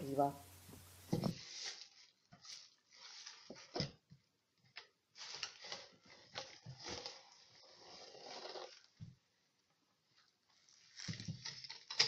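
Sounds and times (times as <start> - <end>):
rustling and scraping: 0.5 - 4.1, 5.1 - 9.2.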